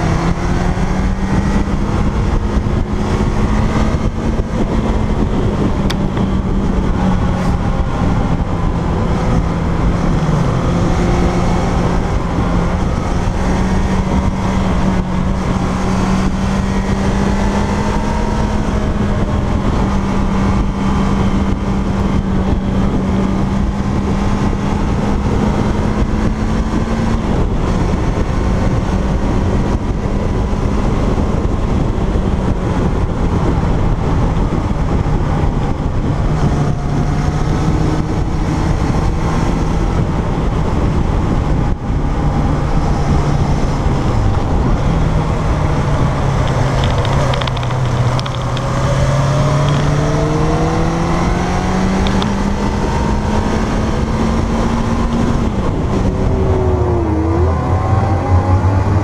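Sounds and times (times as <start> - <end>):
motorcycle engine running: 0.0 - 59.0
wind and road noise: 0.0 - 59.0.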